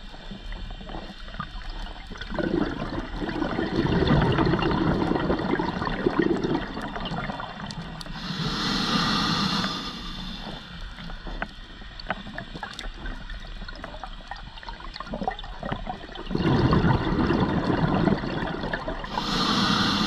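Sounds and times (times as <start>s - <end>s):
bubbling exhale through regulator: 1.7s - 14.1s, 14.9s - 20.0s
hissing inhale: 8.1s - 11.5s, 19.0s - 20.0s.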